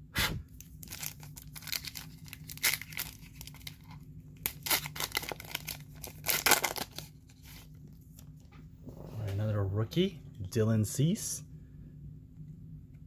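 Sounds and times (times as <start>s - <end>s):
foil wrapper tearing and crinkling: 0.6s - 7.6s.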